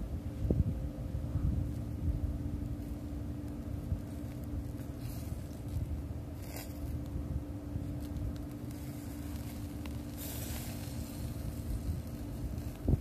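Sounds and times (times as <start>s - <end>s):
faint hum: 0.0s - 13.0s
low rumble: 0.0s - 13.0s
skewers scraping wire grill basket: 4.0s - 7.1s, 7.9s - 13.0s.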